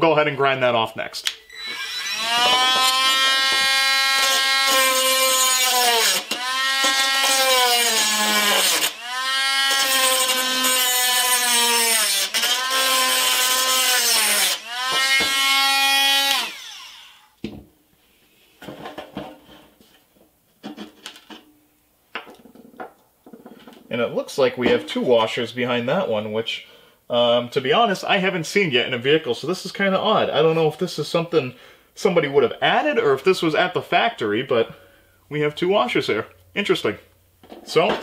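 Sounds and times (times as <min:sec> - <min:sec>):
rotary tool grinding metal: 0:01.5 - 0:17.4.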